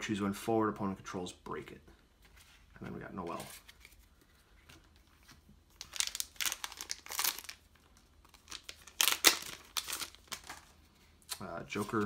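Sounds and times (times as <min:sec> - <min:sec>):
foil wrapper tearing and crinkling: 0:05.8 - 0:07.7, 0:08.3 - 0:10.7.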